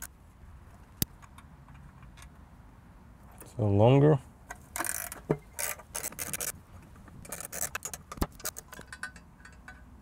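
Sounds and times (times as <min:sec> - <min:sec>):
metal clinks and scrapes: 0:04.5 - 0:06.6, 0:07.2 - 0:10.0
ratchet wrench clicking: 0:04.8 - 0:06.6, 0:07.2 - 0:09.6.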